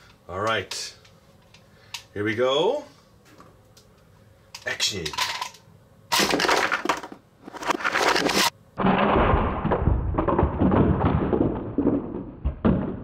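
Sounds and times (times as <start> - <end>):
plastic cans clattering down: 6.1 - 8.5.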